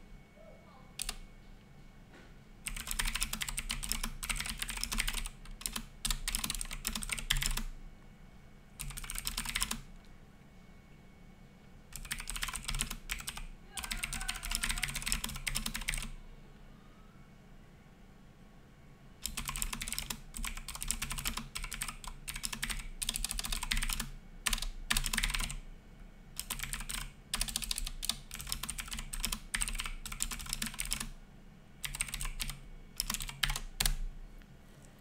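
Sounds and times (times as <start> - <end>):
keyboard typing: 1.0 - 1.2, 2.6 - 7.7, 8.8 - 9.9, 11.9 - 16.1, 19.2 - 25.6, 26.4 - 31.2, 31.8 - 34.0.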